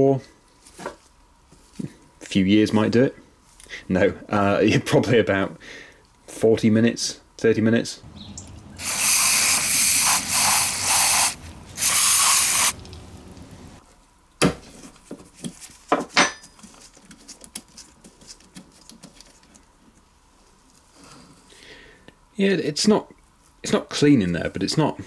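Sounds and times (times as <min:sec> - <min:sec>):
hissing spray blasts: 0:08.1 - 0:13.8.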